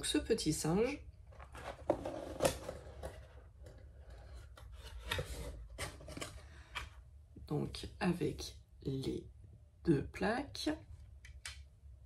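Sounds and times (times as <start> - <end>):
packaging rustling and scraping: 1.3 - 6.8.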